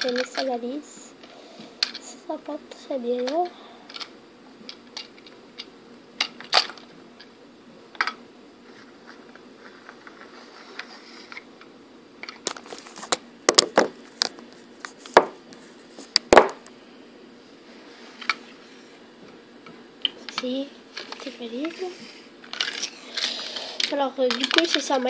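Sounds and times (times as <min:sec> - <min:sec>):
plastic toy clicks and knocks: 0:00.0 - 0:00.5, 0:22.5 - 0:25.0.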